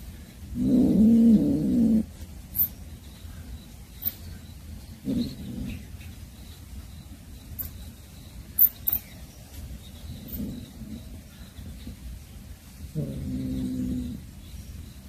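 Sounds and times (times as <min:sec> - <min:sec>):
cat growling low: 0:00.5 - 0:02.7, 0:05.0 - 0:06.0, 0:10.1 - 0:11.2, 0:12.9 - 0:14.4.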